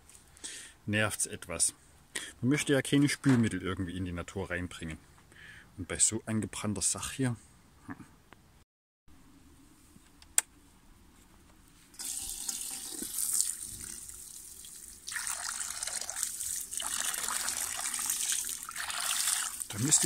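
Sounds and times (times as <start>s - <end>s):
water pouring into a metal pan: 12.0s - 20.0s.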